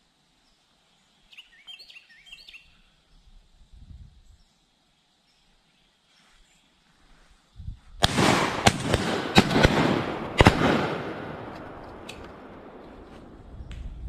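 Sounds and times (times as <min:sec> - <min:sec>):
shotgun shots with echoes: 0:08.0 - 0:13.1.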